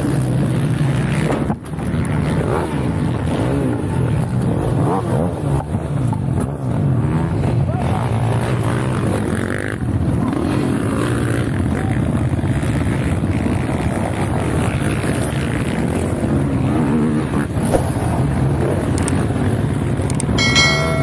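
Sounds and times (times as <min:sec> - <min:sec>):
short chiming sound effect: 0:20.4 - 0:21.0.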